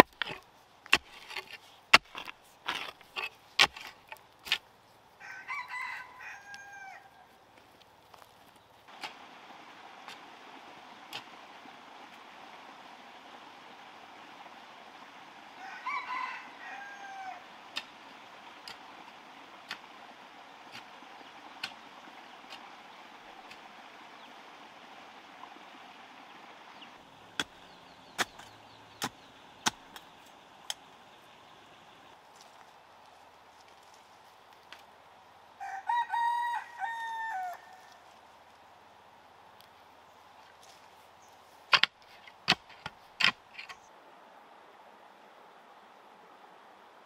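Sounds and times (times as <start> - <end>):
rooster crowing: 5.2 - 7.3, 15.5 - 17.5, 35.6 - 38.0.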